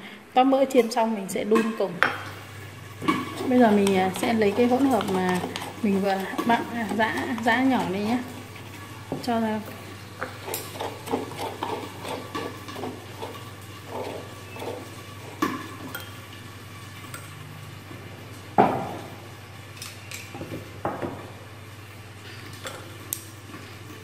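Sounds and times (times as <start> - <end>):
spoon scraping wooden mortar: 3.1 - 8.3, 10.2 - 15.9.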